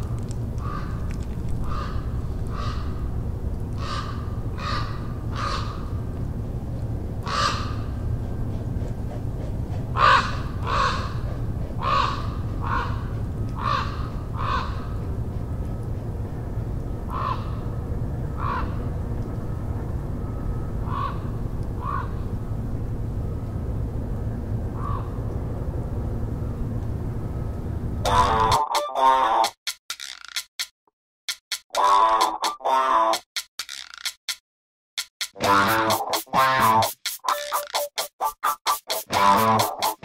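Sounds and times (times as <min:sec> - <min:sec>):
crow cawing: 0:00.6 - 0:01.0, 0:01.6 - 0:03.0, 0:03.8 - 0:06.0, 0:07.2 - 0:07.9, 0:10.0 - 0:11.2, 0:11.8 - 0:15.0, 0:17.1 - 0:17.6, 0:18.4 - 0:18.8, 0:20.9 - 0:22.1, 0:24.8 - 0:25.1.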